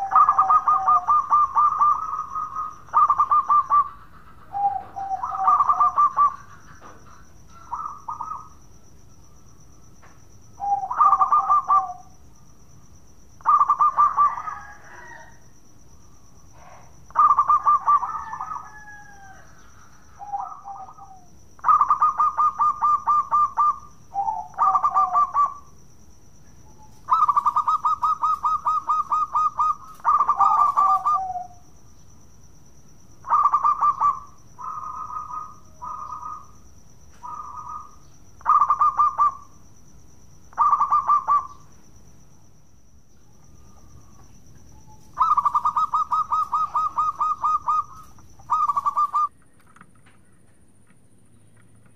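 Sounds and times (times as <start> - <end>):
dove cooing: 0.0 - 8.6, 10.5 - 12.2, 13.4 - 15.4, 16.5 - 25.7, 26.6 - 31.7, 33.2 - 39.6, 40.5 - 41.7, 43.4 - 49.3.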